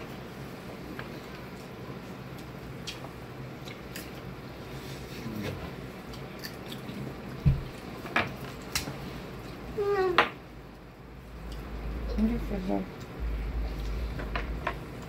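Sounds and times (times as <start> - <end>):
chewing: 1.2 - 4.3, 6.0 - 9.6.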